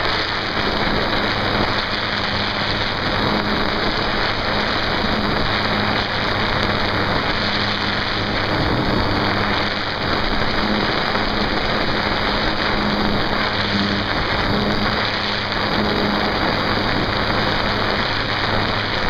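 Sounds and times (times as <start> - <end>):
motor and propeller hum: 0.0 - 19.0
wind rushing over microphone: 0.0 - 19.0.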